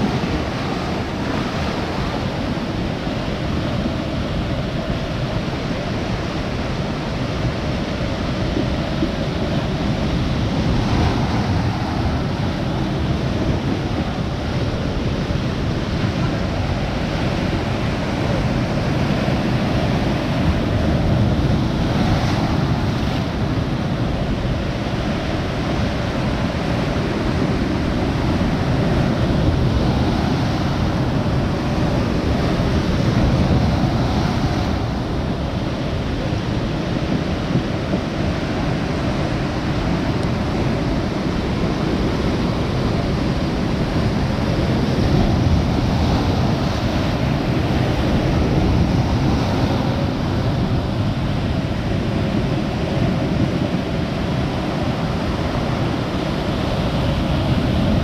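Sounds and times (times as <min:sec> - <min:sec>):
waves breaking over rocks: 0:00.0 - 0:58.0.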